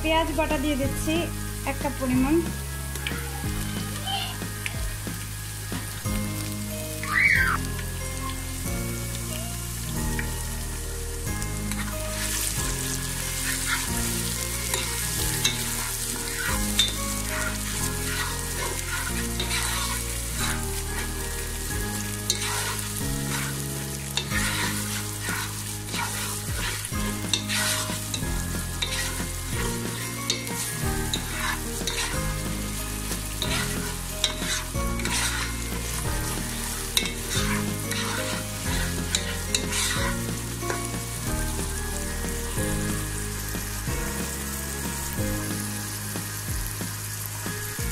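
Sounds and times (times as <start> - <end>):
onions sizzling in oil: 0.0 - 47.9
spatula scraping pan: 11.6 - 41.3.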